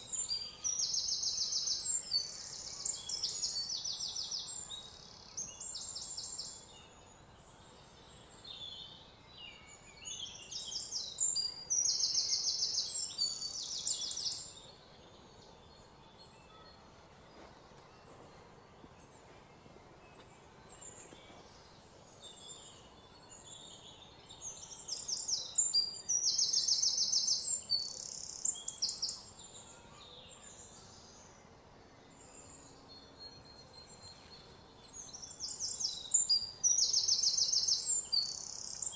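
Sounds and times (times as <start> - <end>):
high-pitched chirping trills: 0.0 - 1.6
faint steady background noise: 0.0 - 38.9.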